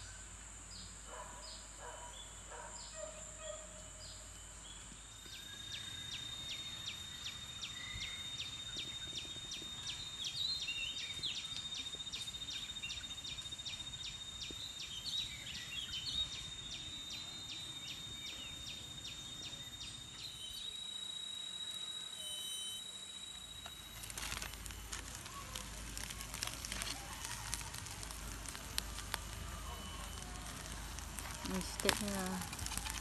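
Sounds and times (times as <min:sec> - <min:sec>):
pulsing insect drone: 0:00.0 - 0:33.0
campfire crackling and popping: 0:22.5 - 0:33.0.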